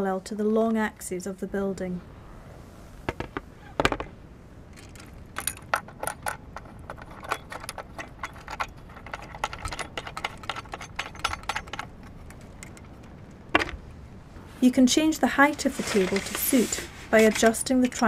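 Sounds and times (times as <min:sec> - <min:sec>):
small chain rattling: 0:04.7 - 0:13.3
metallic clinking on tripod: 0:04.7 - 0:13.8.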